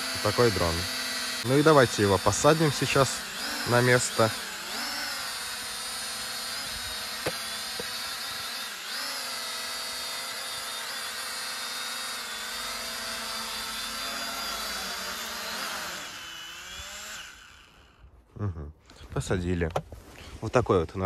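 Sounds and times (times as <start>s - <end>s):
drone propellers whining: 0.0s - 9.5s.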